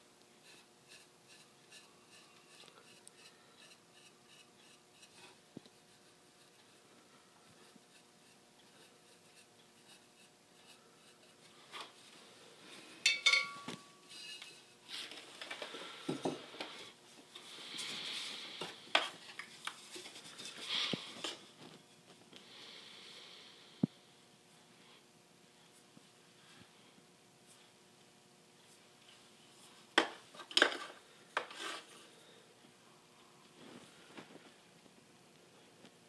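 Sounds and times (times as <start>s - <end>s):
paintbrush rubbing on pot: 0.4s - 11.7s, 14.0s - 14.8s
ringing ceramic clink: 13.1s - 13.9s.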